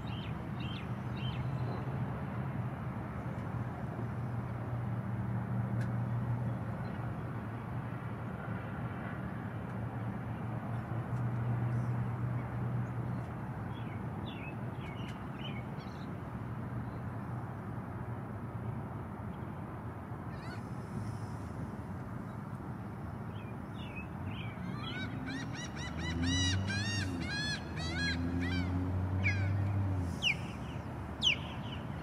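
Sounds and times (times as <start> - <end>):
outdoor noise: 0.0 - 32.0
bird chirping calls: 23.4 - 32.0.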